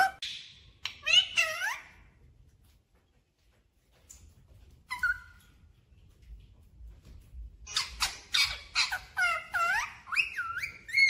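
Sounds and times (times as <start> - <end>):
parakeet squawking calls: 7.7 - 11.0.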